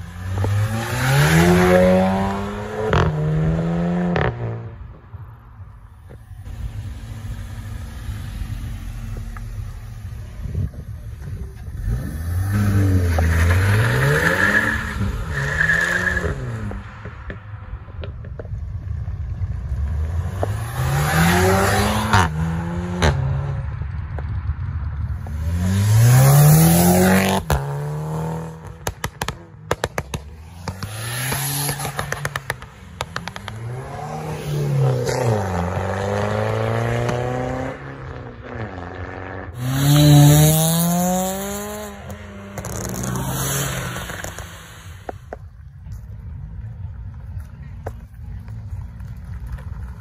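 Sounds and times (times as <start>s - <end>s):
car engines revving: 0.0s - 50.0s
sharp cracks: 28.7s - 33.8s.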